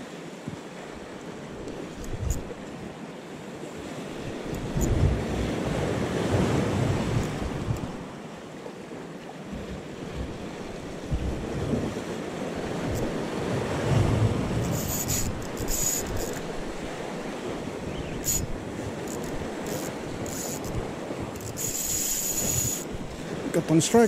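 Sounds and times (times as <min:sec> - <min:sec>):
wind buffeting microphone: 0:01.4 - 0:02.9, 0:03.8 - 0:08.2, 0:09.5 - 0:23.6
waves breaking against concrete: 0:09.6 - 0:24.0
high hissing scrapes: 0:14.7 - 0:16.4, 0:21.4 - 0:22.9.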